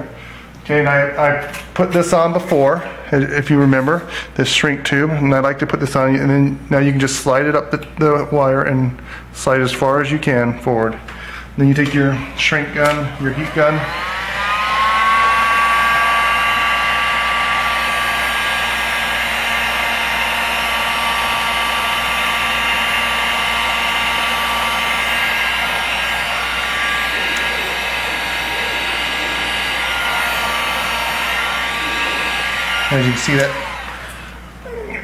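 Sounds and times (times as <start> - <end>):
heat gun running: 11.8 - 34.6.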